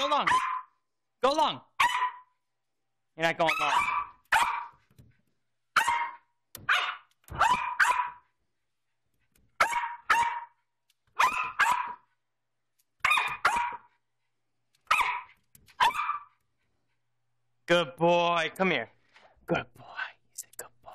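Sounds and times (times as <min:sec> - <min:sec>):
small dog barking: 0:00.2 - 0:00.8, 0:01.8 - 0:02.3, 0:03.5 - 0:04.8, 0:05.7 - 0:08.3, 0:09.6 - 0:12.1, 0:13.0 - 0:13.9, 0:14.8 - 0:16.4.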